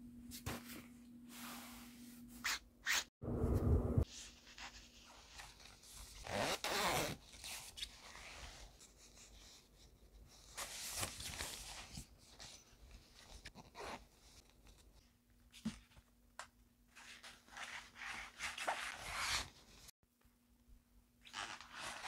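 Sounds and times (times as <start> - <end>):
zipper being pulled open: 6.2 - 7.2.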